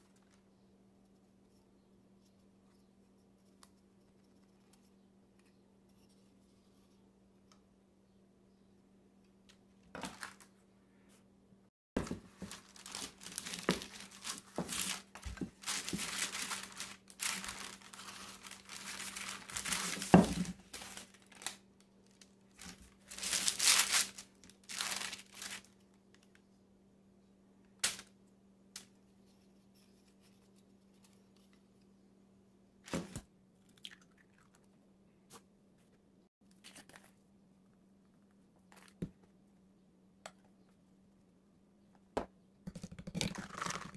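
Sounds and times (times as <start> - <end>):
paper and plastic wrapping rustling: 10.0 - 10.5, 12.0 - 25.8.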